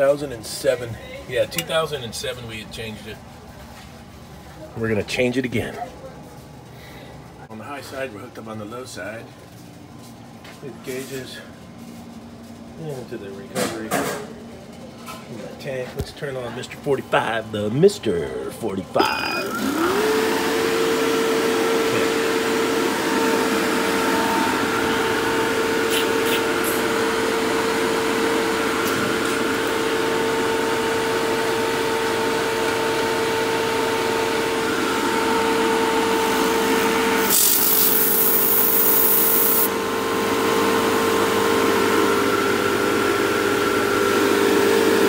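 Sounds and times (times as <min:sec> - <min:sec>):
machine motor hum and whine: 0:16.2 - 0:45.0
loud hiss: 0:37.2 - 0:39.7.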